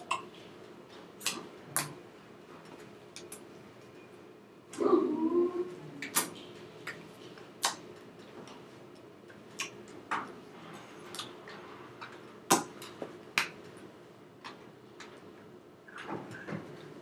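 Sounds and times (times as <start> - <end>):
faint steady hum: 0.0 - 17.0
hands tapping and slapping: 12.5 - 13.6.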